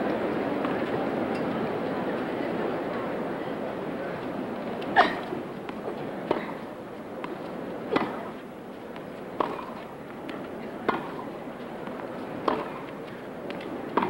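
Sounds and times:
crowd murmur: 0.0s - 14.0s
racket striking tennis ball: 7.9s - 8.4s, 9.4s - 9.8s, 10.8s - 11.2s, 12.4s - 12.9s
ball bouncing: 9.4s - 9.7s.

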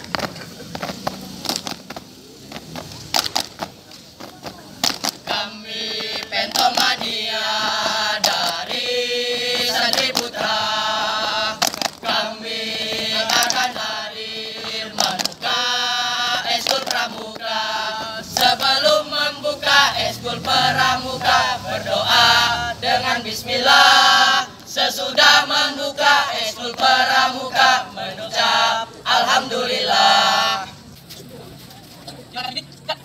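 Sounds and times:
group chanting in unison: 5.2s - 30.8s.

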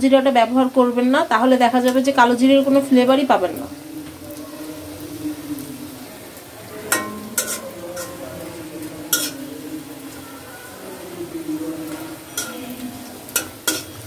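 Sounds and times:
pakoras sizzling in oil: 0.0s - 14.0s
spatula clinking against pan: 6.9s - 8.2s, 9.1s - 9.4s, 12.3s - 12.7s, 13.3s - 14.0s.

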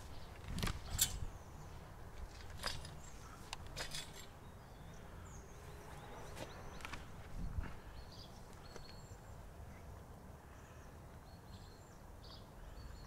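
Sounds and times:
faint bird chirps: 4.4s - 13.0s.

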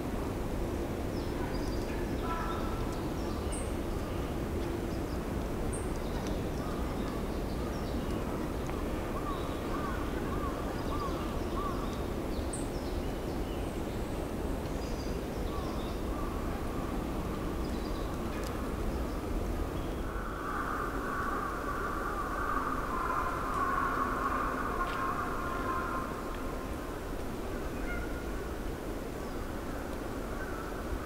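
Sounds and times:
wild birds calling: 9.2s - 12.0s, 19.9s - 26.7s, 27.6s - 28.4s.

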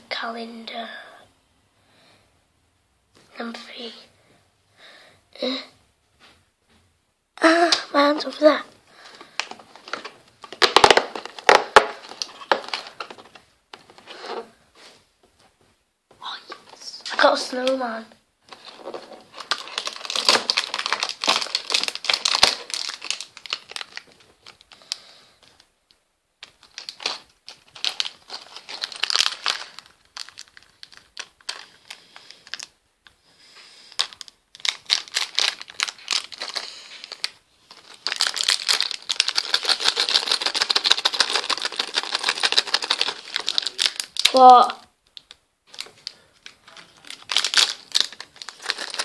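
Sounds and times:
plastic packaging crinkling: 9.0s - 14.5s, 18.5s - 25.6s, 26.4s - 32.8s, 33.9s - 49.0s
plastic pieces clicking: 9.4s - 13.9s, 34.0s - 49.0s.

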